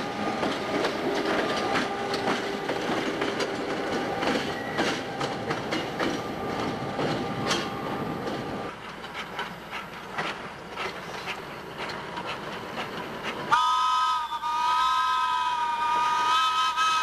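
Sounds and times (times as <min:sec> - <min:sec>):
passing diesel locomotive: 0:00.0 - 0:17.0
steam whistle blast: 0:13.5 - 0:17.0.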